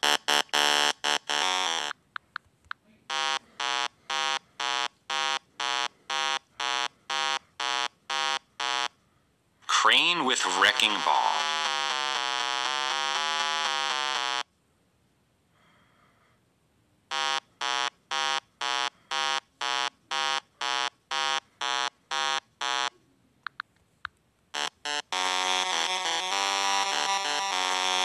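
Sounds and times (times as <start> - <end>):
steady electronic buzzing tone: 0.0 - 1.9, 3.1 - 8.9, 11.0 - 14.4, 17.1 - 22.9, 24.6 - 28.0.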